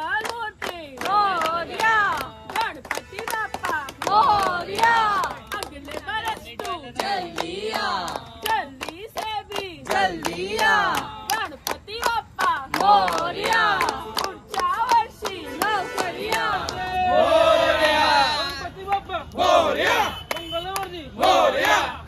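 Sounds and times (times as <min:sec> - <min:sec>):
rhythmic hand-clapping: 0:00.0 - 0:22.0
group of people singing: 0:01.0 - 0:02.8, 0:04.0 - 0:08.9, 0:09.5 - 0:18.6, 0:19.3 - 0:20.2, 0:21.1 - 0:22.0.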